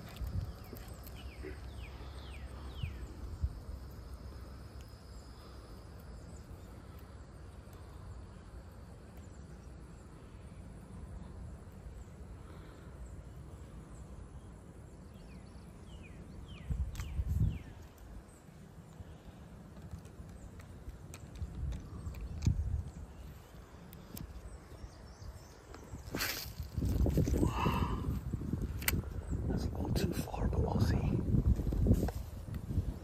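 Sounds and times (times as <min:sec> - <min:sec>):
faint high insect hum: 0:00.0 - 0:33.0
steady low rumble: 0:00.0 - 0:33.0.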